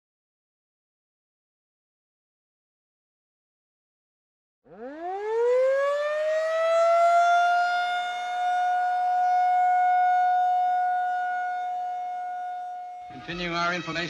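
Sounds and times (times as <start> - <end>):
civil defense siren wailing: 4.7 - 13.2.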